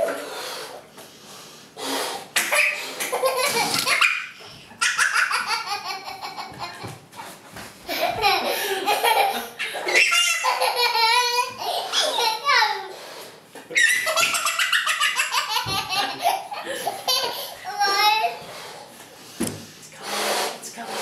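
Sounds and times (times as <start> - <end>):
toddler laughing: 2.4 - 7.0, 7.9 - 12.9, 13.7 - 18.3.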